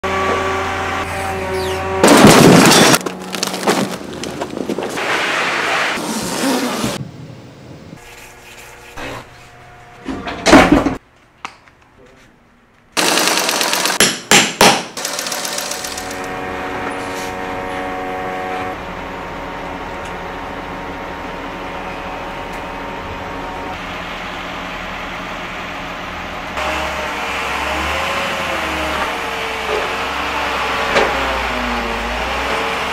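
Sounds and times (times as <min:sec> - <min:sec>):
truck engine humming: 0:02.7 - 0:05.0, 0:15.7 - 0:32.9.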